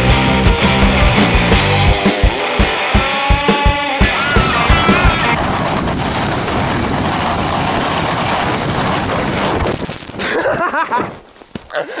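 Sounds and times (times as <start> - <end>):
person crying out: 4.0 - 5.4
wind on microphone: 4.8 - 11.3
skates sliding over snow: 6.5 - 12.0.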